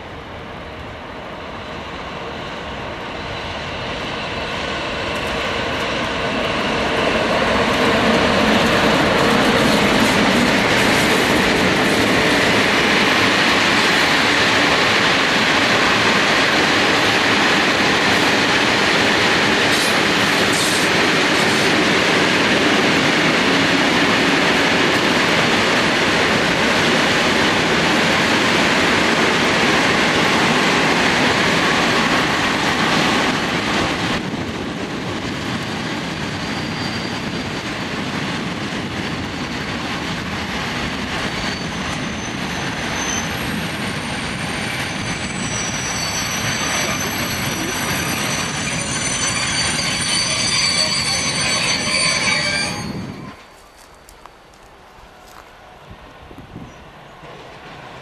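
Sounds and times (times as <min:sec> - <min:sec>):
freight train rolling past: 0:00.0 - 0:58.0
high wheel squeals: 0:36.4 - 0:37.5, 0:41.2 - 0:44.2, 0:44.8 - 0:54.2.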